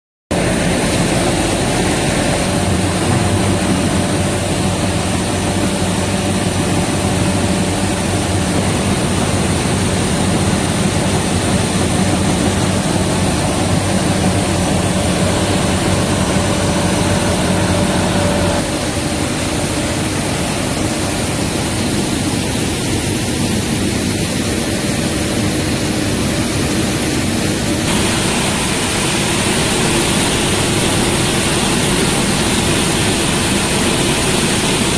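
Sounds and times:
machinery and motors din: 27.9s - 34.9s
thin high whine: 27.9s - 34.9s.

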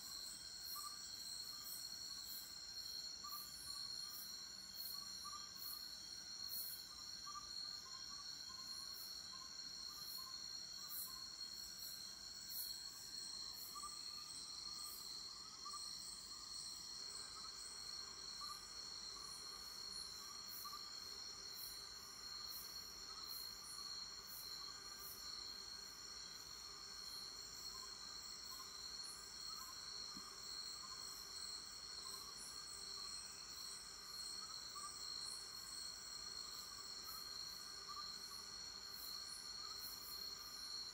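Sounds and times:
faint insect chirps: 0.0s - 40.9s
high pulsing insect call: 0.0s - 40.9s.

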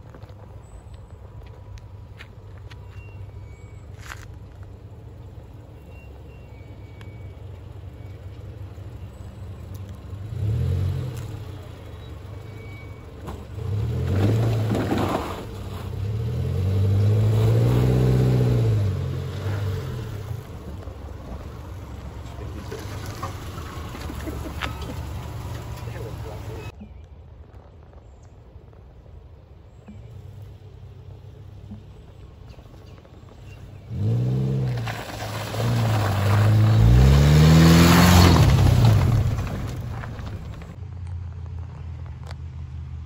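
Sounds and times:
car engine revving: 9.8s - 26.7s, 33.8s - 40.8s.

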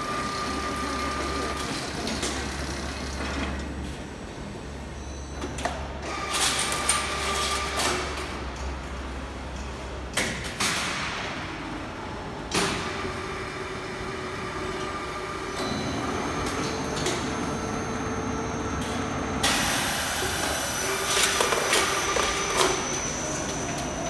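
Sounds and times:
roller conveyor humming: 11.5s - 24.0s
machinery whine: 13.1s - 24.0s.

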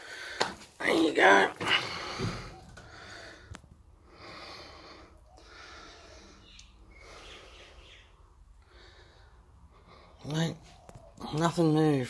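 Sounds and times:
person breathing: 0.0s - 0.7s, 1.6s - 10.2s.

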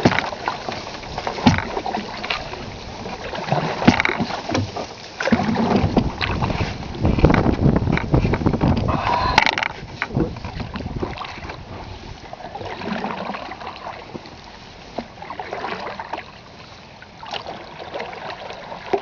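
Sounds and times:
water drips and knocks: 0.0s - 2.6s, 3.2s - 11.6s
water lapping against canoe hull: 0.0s - 19.0s
wind buffeting microphone: 5.4s - 12.3s.

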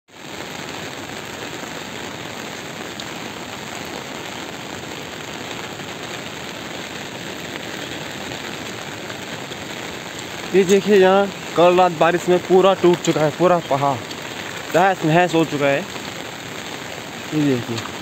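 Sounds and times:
rain on wet road: 0.1s - 18.0s.

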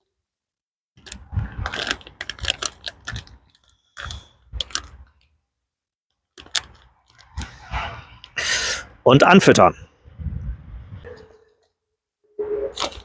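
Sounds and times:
plastic bag crinkling: 1.0s - 3.7s.

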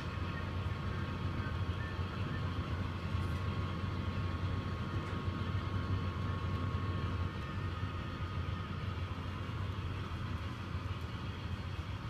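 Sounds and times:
thin steady whine: 0.0s - 12.0s.

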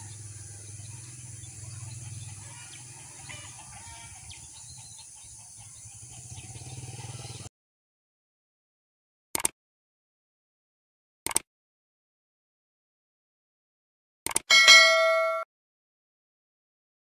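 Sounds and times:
birds chirping: 0.0s - 7.5s.

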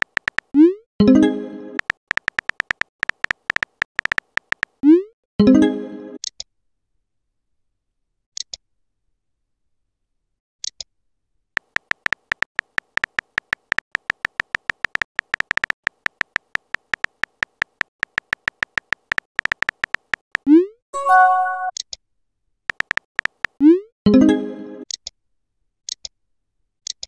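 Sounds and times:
keyboard key-tap clicks: 0.0s - 0.5s, 1.8s - 4.7s, 11.6s - 20.5s, 22.7s - 23.6s.

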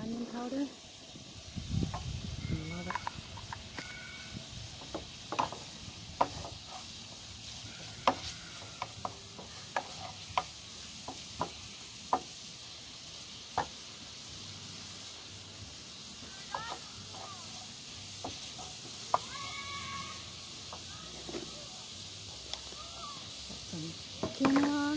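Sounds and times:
food sizzling in a frying pan: 0.0s - 24.9s
spatula scraping a pan: 2.0s - 12.5s, 16.5s - 21.6s.

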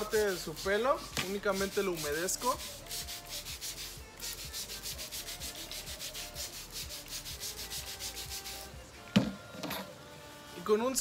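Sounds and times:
spray bottle hisses: 0.0s - 8.8s.

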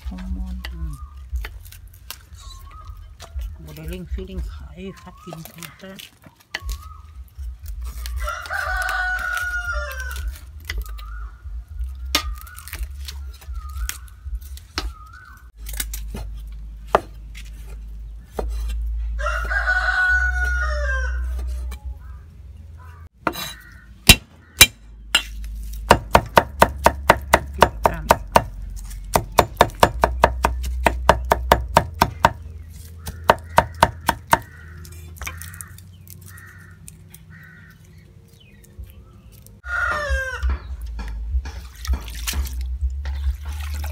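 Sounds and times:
rooster crowing: 8.2s - 10.2s, 19.2s - 21.5s, 39.6s - 40.6s
cleaver chopping on wooden block: 23.2s - 32.4s, 33.0s - 34.6s.

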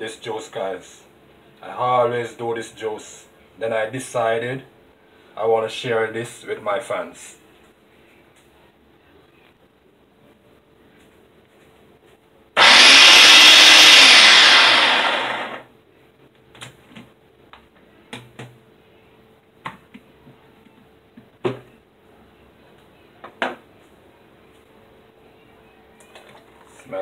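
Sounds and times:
blender motor running: 12.6s - 15.6s.

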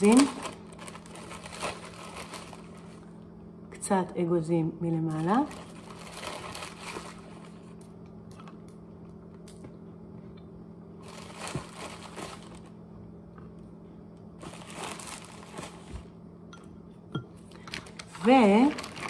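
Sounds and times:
plastic bag crinkling: 0.0s - 3.1s, 5.1s - 7.8s, 11.0s - 12.8s, 14.4s - 16.1s, 17.6s - 19.0s
steady low hum: 0.0s - 19.0s.

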